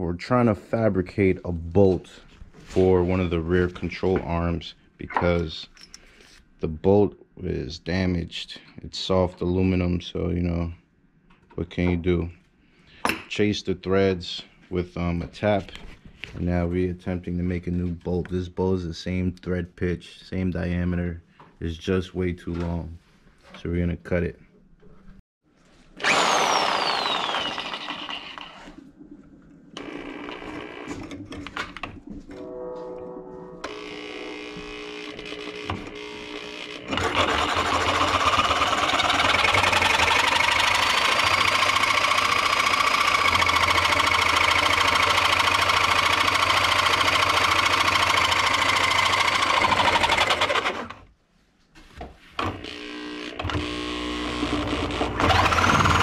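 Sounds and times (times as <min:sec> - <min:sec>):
power tool whining cutting bolt: 0:26.0 - 0:28.8, 0:29.8 - 0:31.4, 0:33.6 - 0:51.0, 0:52.4 - 0:56.0.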